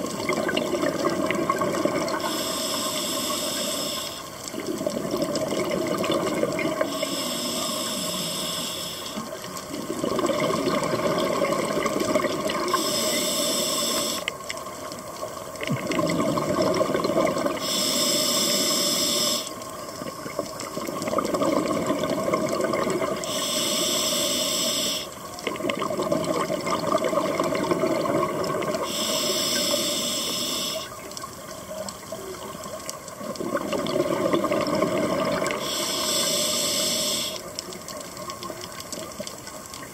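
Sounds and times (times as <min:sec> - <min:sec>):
bubbles gurgling: 0:00.0 - 0:02.3, 0:04.5 - 0:07.0, 0:09.3 - 0:12.9, 0:15.6 - 0:17.6, 0:20.0 - 0:23.3, 0:25.4 - 0:29.0, 0:32.3 - 0:35.7
diver breathing through regulator: 0:02.2 - 0:04.3, 0:06.8 - 0:09.3, 0:12.7 - 0:14.3, 0:17.6 - 0:19.6, 0:23.2 - 0:25.1, 0:28.8 - 0:30.9, 0:35.5 - 0:37.4.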